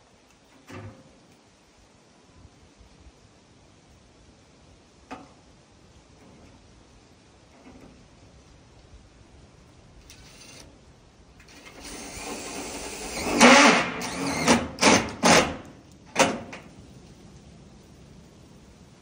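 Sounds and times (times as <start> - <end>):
cordless drill driving screw: 10.0 - 10.7, 11.4 - 15.5.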